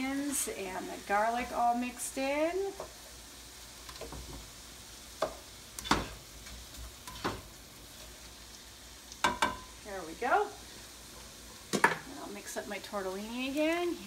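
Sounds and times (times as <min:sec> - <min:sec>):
vegetables sizzling in a skillet: 0:00.0 - 0:14.0
spatula knocking and scraping pan: 0:05.2 - 0:06.2, 0:07.0 - 0:07.5, 0:09.2 - 0:09.7.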